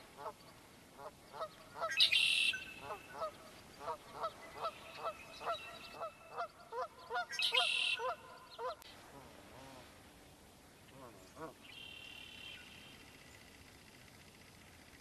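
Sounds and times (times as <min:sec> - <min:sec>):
geese honking: 0:01.0 - 0:08.8
bird's higher shorter call: 0:07.2 - 0:08.6.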